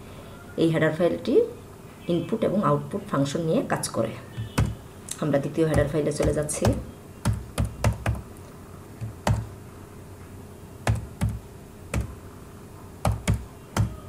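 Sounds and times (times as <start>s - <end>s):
single keyboard keystrokes: 4.4s - 8.2s, 10.8s - 12.2s, 13.0s - 14.0s.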